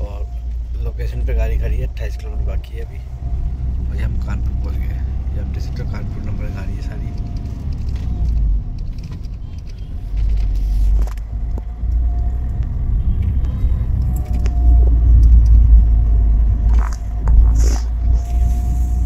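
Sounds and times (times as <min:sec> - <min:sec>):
car road and engine rumble: 0:00.0 - 0:19.0.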